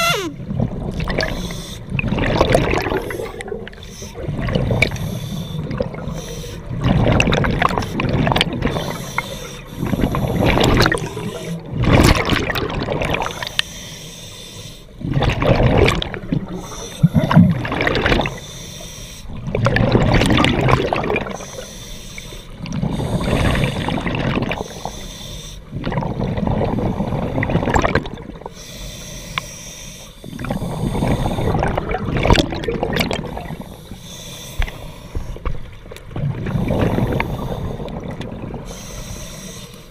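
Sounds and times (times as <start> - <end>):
diver breathing through regulator: 0.0 - 0.4, 1.2 - 2.0, 2.8 - 6.7, 7.8 - 11.7, 13.2 - 15.0, 21.3 - 25.8, 28.5 - 31.8, 33.2 - 35.5, 36.4 - 39.9
exhaled bubbles rushing: 0.0 - 5.0, 6.7 - 9.0, 9.8 - 13.5, 15.0 - 18.4, 19.4 - 21.4, 22.6 - 24.7, 25.7 - 28.5, 30.3 - 33.6, 36.1 - 38.7.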